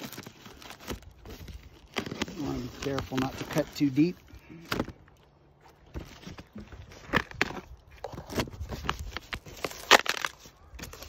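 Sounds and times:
cardboard box scraping and tearing: 0:00.0 - 0:04.0
sharp cardboard crack: 0:06.5 - 0:11.0.

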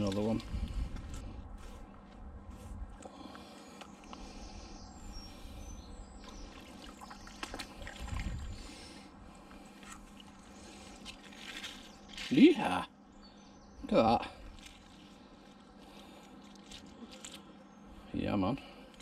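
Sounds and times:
faint bird chirps: 0:03.7 - 0:08.6.

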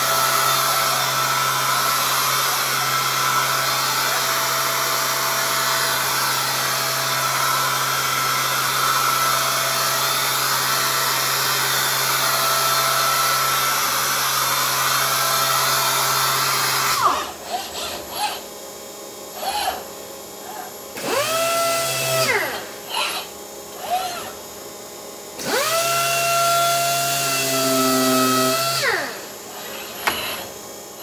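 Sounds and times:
palm sander whirring on wood: 0:00.0 - 0:18.5, 0:19.3 - 0:31.0
robot arm whirring: 0:17.0 - 0:18.4, 0:19.4 - 0:24.4, 0:25.4 - 0:30.6.

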